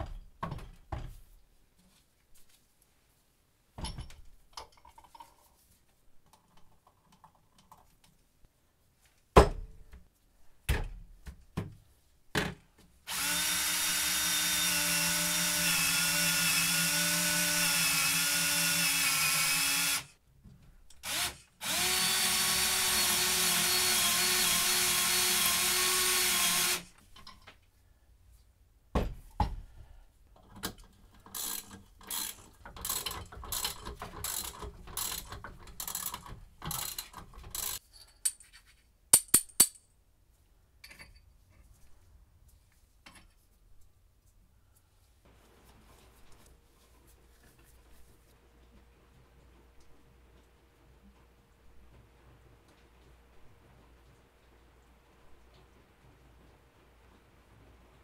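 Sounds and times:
drill boring into wood: 13.1 - 20.1, 21.0 - 26.9.

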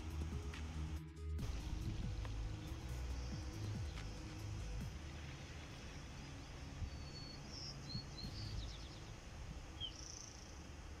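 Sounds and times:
low steady rumble: 0.0 - 11.0
high bird chirps: 5.9 - 10.7.

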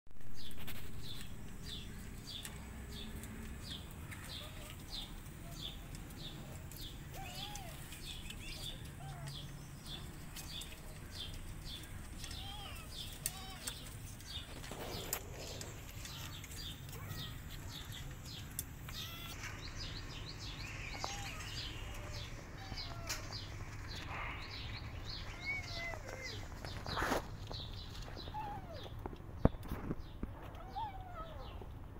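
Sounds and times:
small bird chirping: 0.2 - 31.7
fainter lower bird calls: 6.7 - 29.0.

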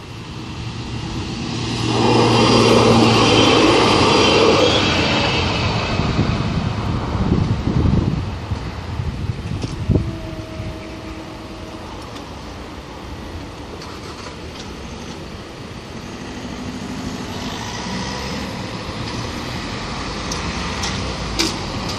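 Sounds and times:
steady tone: 0.0 - 6.2
car approaching: 0.0 - 21.9.

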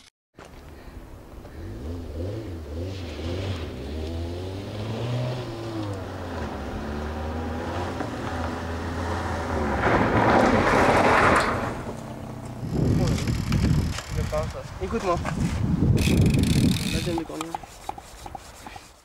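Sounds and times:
car engine revving: 1.6 - 13.4.

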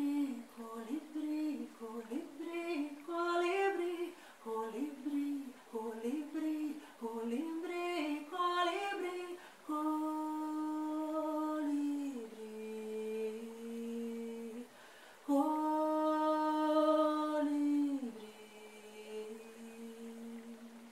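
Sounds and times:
woman humming a melody: 15.3 - 20.9.

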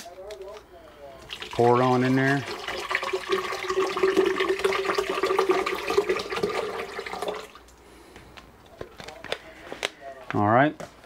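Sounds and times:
water pouring into blender jar: 1.3 - 7.7.

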